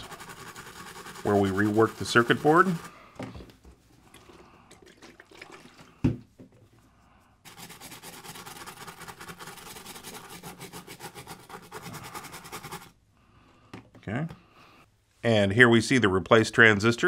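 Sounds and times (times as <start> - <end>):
brush scrubbing circuit board: 0.0 - 2.9, 7.5 - 12.9.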